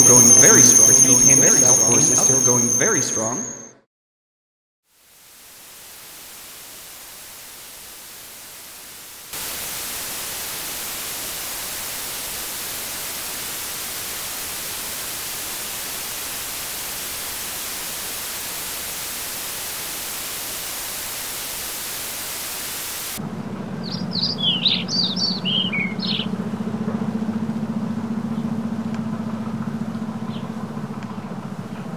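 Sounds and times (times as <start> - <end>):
steady low hum: 0.0 - 3.7, 5.4 - 31.9
static hiss: 4.9 - 23.2
quick bird chirps: 23.8 - 26.3.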